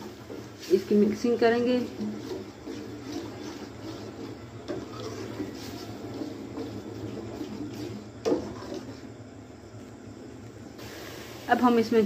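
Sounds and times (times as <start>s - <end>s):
spoon stirring thick sauce: 0.0s - 9.2s.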